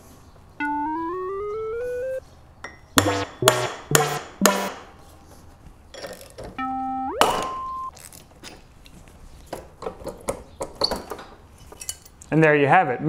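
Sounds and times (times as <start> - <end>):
struck ringing notes: 0.6 - 2.2, 3.0 - 4.9, 6.6 - 7.9
upward sliding tone: 0.6 - 2.2, 6.6 - 7.9.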